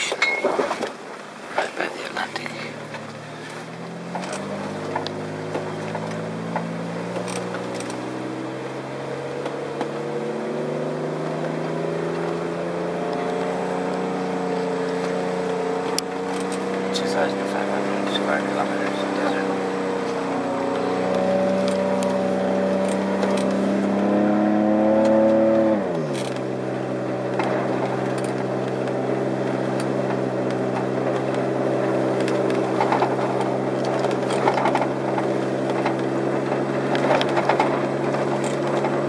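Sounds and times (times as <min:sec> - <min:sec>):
car engine driving: 0:00.0 - 0:39.0
ticks and rattles in cabin: 0:32.2 - 0:39.0.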